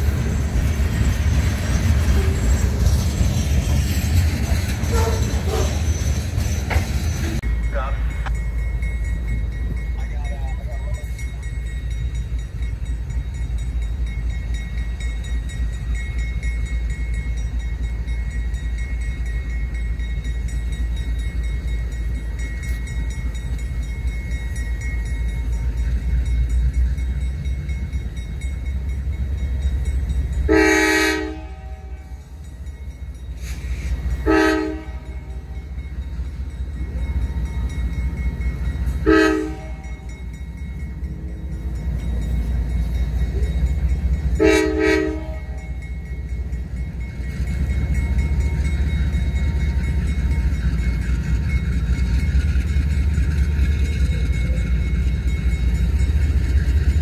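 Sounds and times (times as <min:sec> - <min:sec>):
locomotive air horn blasts: 0:04.9 - 0:05.8, 0:30.5 - 0:32.2, 0:34.2 - 0:35.5, 0:39.0 - 0:40.1, 0:44.4 - 0:45.8.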